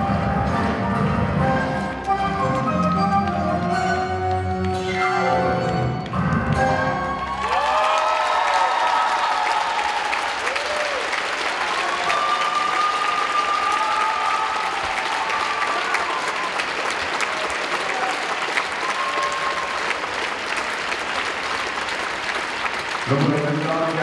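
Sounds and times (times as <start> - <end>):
crowd applauding: 5.6 - 24.0
high calls from audience: 6.8 - 20.3.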